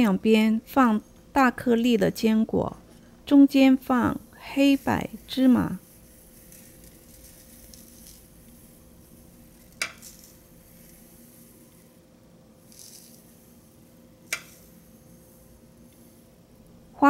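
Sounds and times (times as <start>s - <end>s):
faint steady hum: 0.0s - 17.0s
seeds trickling onto tray: 4.3s - 12.0s, 12.6s - 16.3s.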